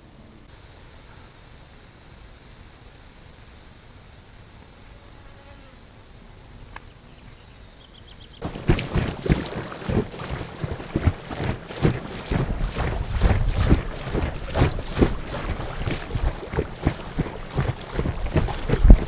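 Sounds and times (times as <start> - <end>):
water slapping boat hull: 8.4 - 19.0
wind buffeting microphone: 8.4 - 19.0.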